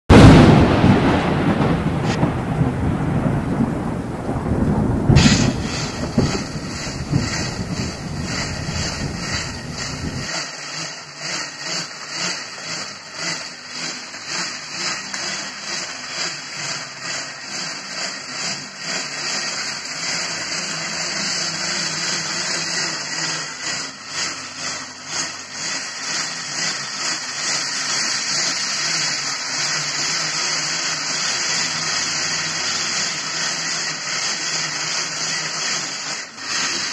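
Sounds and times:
loud rumbling swoosh: 0.1 - 10.3
bicycle wheel whirring: 0.1 - 36.9.

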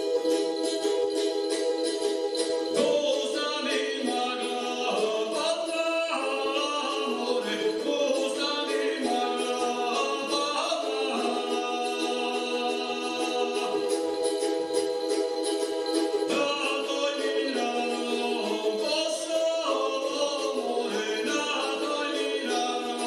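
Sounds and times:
man singing folk melody: 2.8 - 14.4, 16.2 - 23.0.

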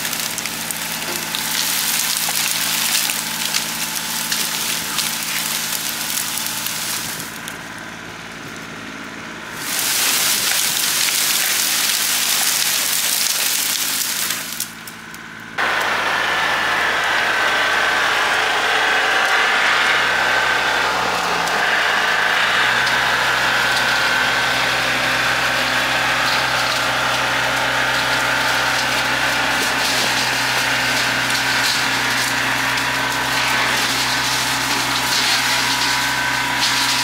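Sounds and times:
tractor diesel engine hum: 0.0 - 37.0
rotary cutter hissing through brush: 9.6 - 14.7
high whine: 15.6 - 37.0.

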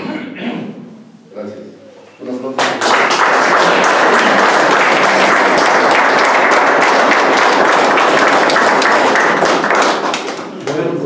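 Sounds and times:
crowd applauding: 2.6 - 10.9.

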